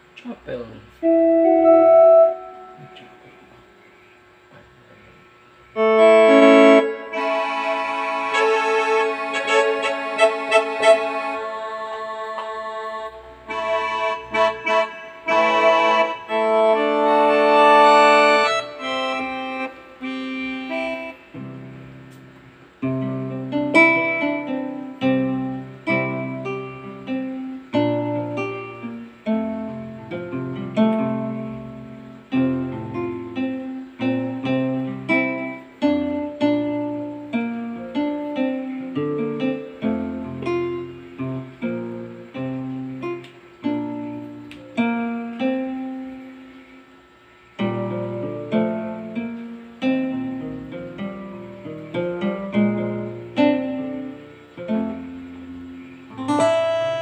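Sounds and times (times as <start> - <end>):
keyboard chords: 0.0 - 57.0
plucked keyboard melody: 1.0 - 3.7, 5.7 - 46.3, 47.6 - 57.0.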